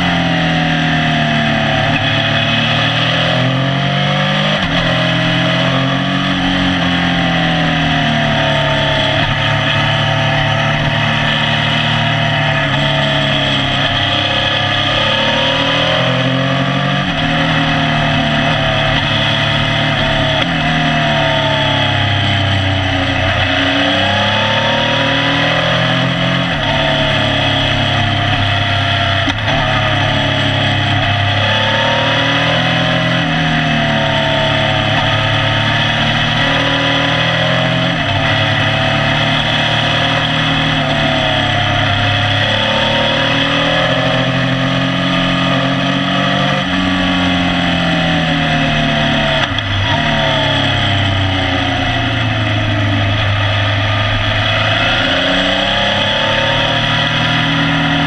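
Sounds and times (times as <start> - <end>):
motorcycle engine revving: 0.0 - 58.0
wind and road rush: 0.0 - 58.0.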